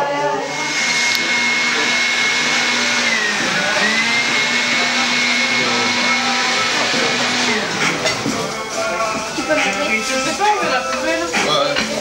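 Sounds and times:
small motor whining: 0.2s - 8.6s.

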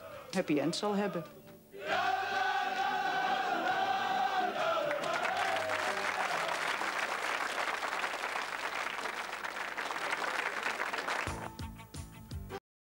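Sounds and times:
audience applauding: 2.0s - 11.6s.

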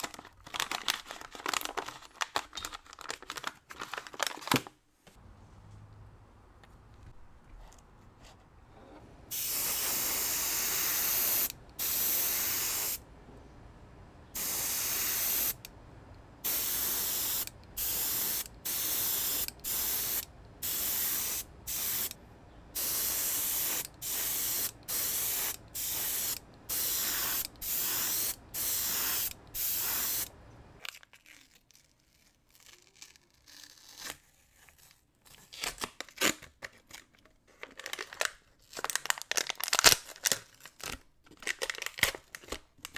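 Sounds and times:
tape and paper crinkling: 0.0s - 4.8s, 30.8s - 42.9s
airbrush spraying hiss: 9.3s - 13.0s, 14.4s - 15.6s, 16.4s - 22.1s, 22.8s - 30.3s.

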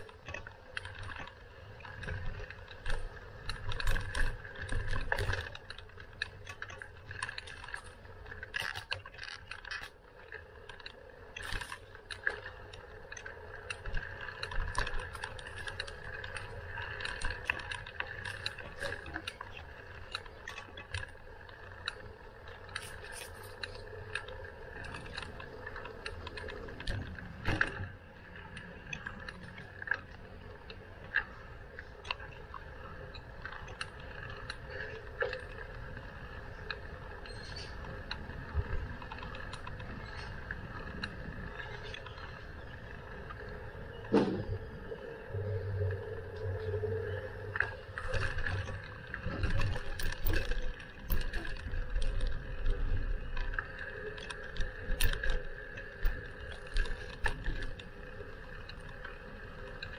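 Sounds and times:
bike rattling over road: 0.0s - 59.9s
bicycle freewheel ticking: 28.2s - 44.0s.

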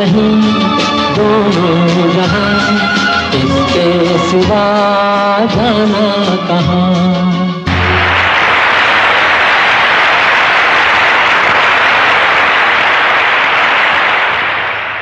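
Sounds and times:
audience applauding: 7.7s - 15.0s.

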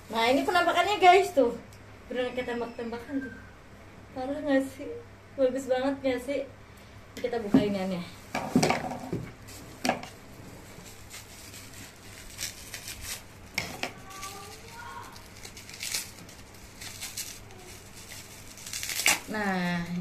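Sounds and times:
plastic wrapping crinkling: 8.1s - 20.0s
scissors snipping plastic: 12.2s - 19.5s.

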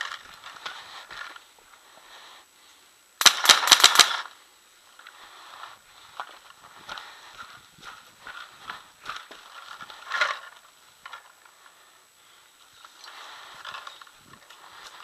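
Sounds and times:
paintball marker firing rapidly: 3.2s - 4.2s.

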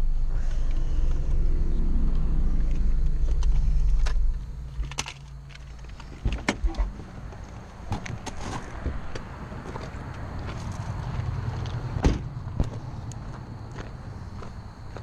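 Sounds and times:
car engine running: 0.0s - 6.2s.

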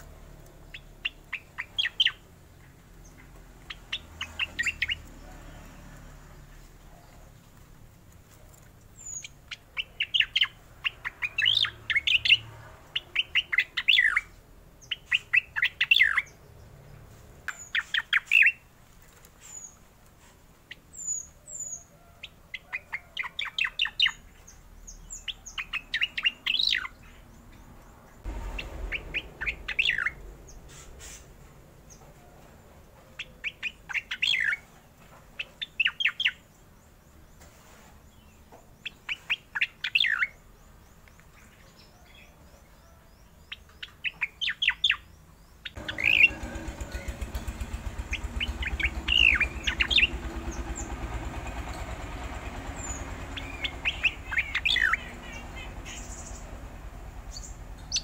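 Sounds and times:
bird singing rattling notes: 0.5s - 5.2s, 8.9s - 16.4s, 22.6s - 32.0s, 33.2s - 34.7s, 43.6s - 58.0s.

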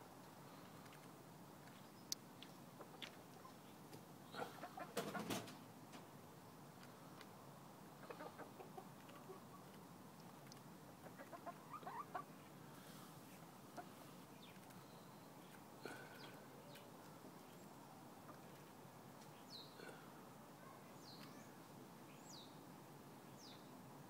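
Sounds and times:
chickens clucking: 4.3s - 5.6s, 8.0s - 12.5s, 13.3s - 14.8s.

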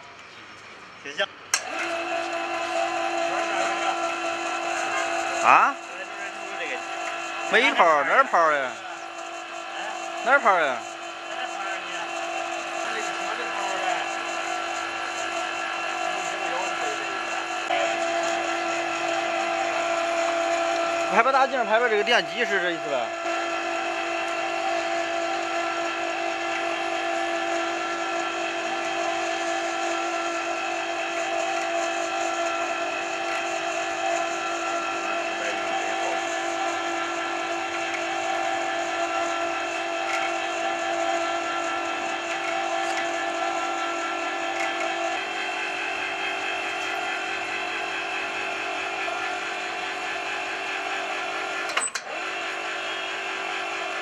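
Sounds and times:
sharp click: 1.5s - 1.8s
hoist motor whining: 1.5s - 54.0s.

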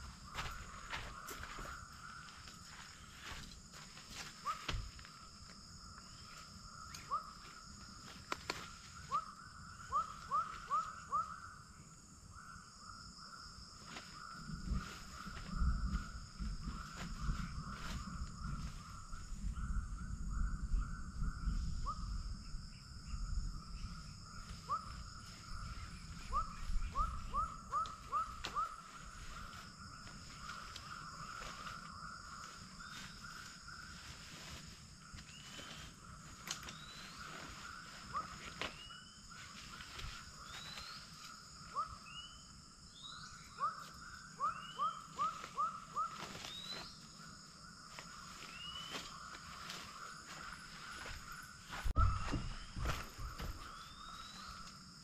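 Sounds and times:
tent fabric and poles rustling: 0.0s - 6.6s, 13.8s - 19.5s, 28.0s - 41.3s, 45.3s - 54.7s
high insect drone: 0.0s - 55.0s
small animal chirping calls: 24.5s - 29.7s.

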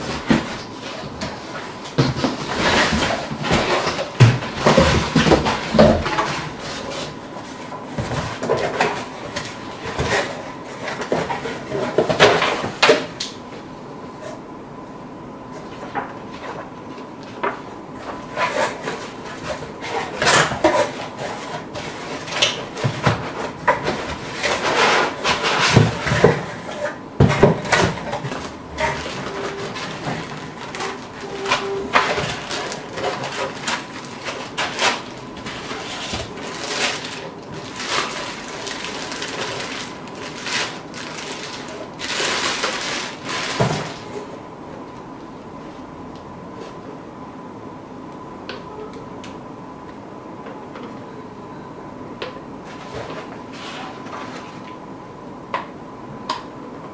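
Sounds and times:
foam blocks rubbing and knocking: 18.2s - 44.2s
paper rustling: 27.4s - 44.3s
plastic bag crinkling: 28.0s - 44.2s
faint high tone: 48.5s - 49.2s, 50.6s - 52.0s.

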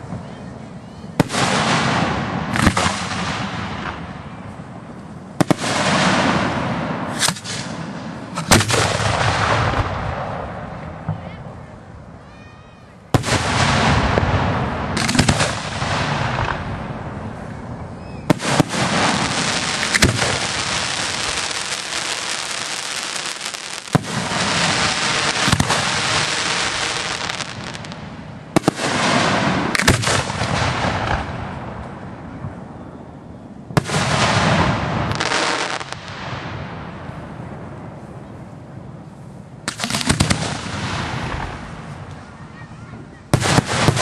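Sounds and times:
firework shells bursting: 5.0s - 10.5s, 13.2s - 16.7s, 18.2s - 31.9s.

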